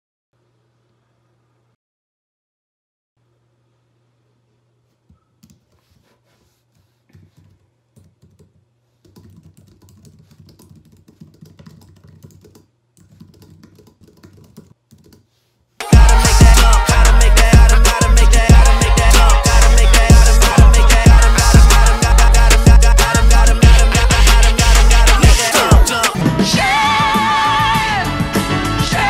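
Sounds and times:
typing on keyboard: 7.3 - 15.2
loud music with heavy beat: 15.8 - 29.0.

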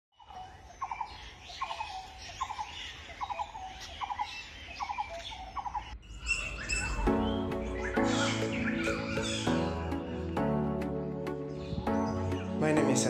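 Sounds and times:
animal call: 0.2 - 10.1
faint chirps: 0.2 - 10.6.

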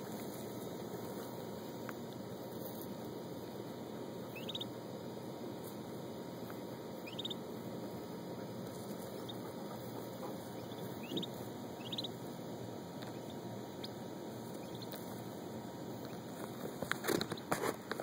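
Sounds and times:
steady low hiss: 0.0 - 18.0
turkey poult peeping: 4.3 - 5.8, 6.4 - 17.6.

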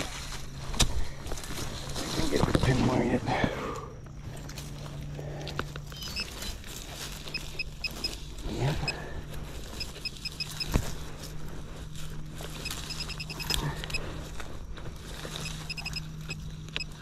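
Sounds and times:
digging in leaf litter: 0.0 - 17.0
metal detector beeps: 5.9 - 11.0, 12.4 - 14.1, 15.3 - 17.0.

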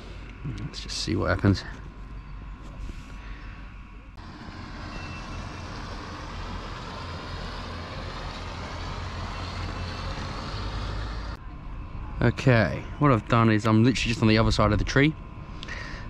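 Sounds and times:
motorboat engine rumble: 1.8 - 13.4.

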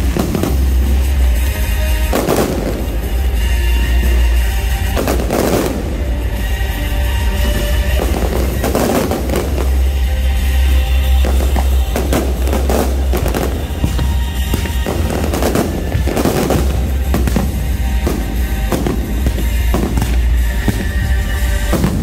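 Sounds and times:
fireworks bursting and crackling: 0.0 - 22.0
music with heavy bass: 0.0 - 22.0.

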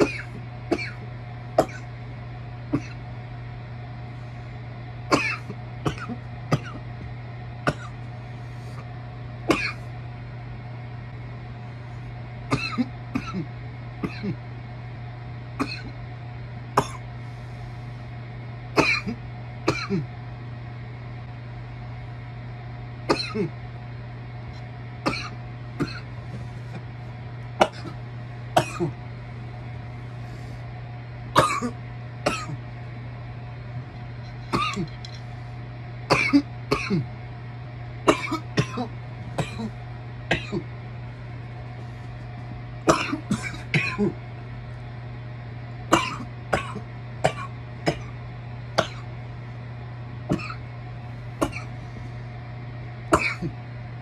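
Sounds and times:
person coughing: 0.0 - 1.0, 1.6 - 1.9, 2.7 - 3.0, 5.1 - 6.9, 7.7 - 8.0, 9.5 - 9.9, 12.5 - 14.4, 15.6 - 16.0, 16.8 - 17.1, 18.7 - 20.1, 23.1 - 23.6, 25.0 - 26.1, 27.6 - 28.0, 28.6 - 29.0, 31.4 - 32.6, 34.5 - 35.0, 36.1 - 37.1, 38.1 - 40.7, 42.9 - 44.2, 45.9 - 48.2, 48.8 - 49.1, 50.3 - 50.7, 51.4 - 51.8, 53.1 - 53.6
low hum: 0.0 - 54.0.

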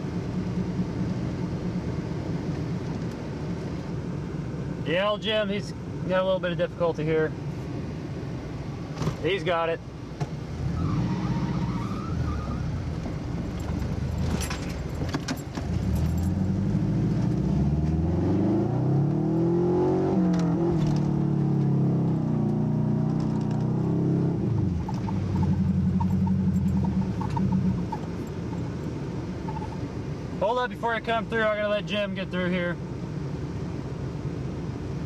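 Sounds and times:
car engine revving: 10.5 - 29.8
metallic clinks and rattles: 13.5 - 16.4, 24.8 - 28.8, 29.4 - 29.8.

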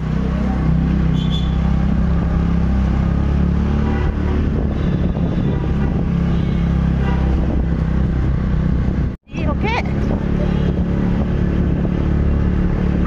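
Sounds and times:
wind noise on microphone: 3.7 - 13.0.

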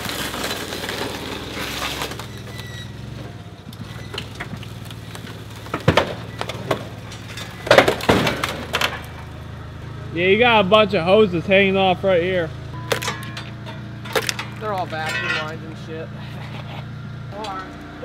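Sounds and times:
forklift engine running: 0.0 - 18.0
sheet metal cracking and banging: 4.0 - 9.4, 12.9 - 15.7.

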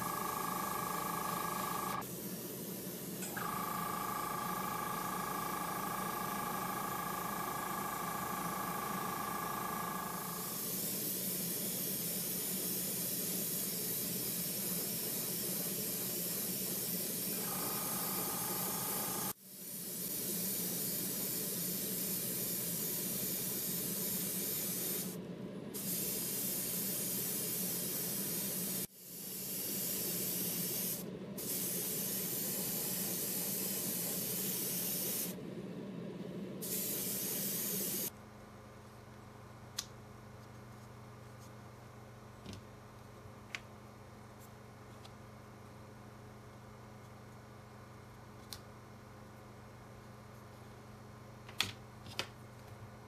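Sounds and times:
airbrush hissing: 0.0 - 7.2, 8.0 - 25.2, 25.8 - 35.4, 36.6 - 38.1.

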